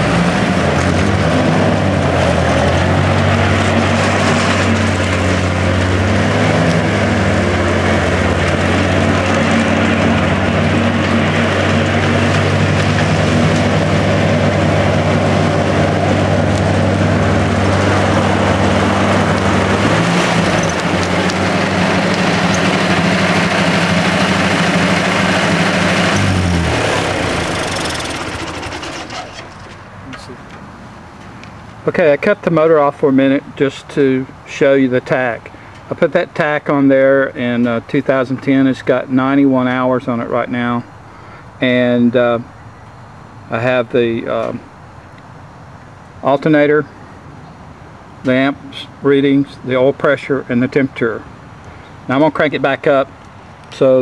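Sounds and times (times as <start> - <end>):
tractor engine running: 0.0 - 31.3.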